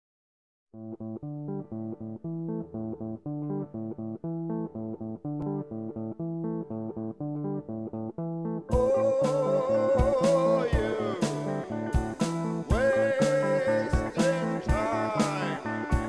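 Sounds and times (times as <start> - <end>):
plucked guitar and bass riff: 0.8 - 16.0
full band with drums and cymbals: 11.2 - 13.4.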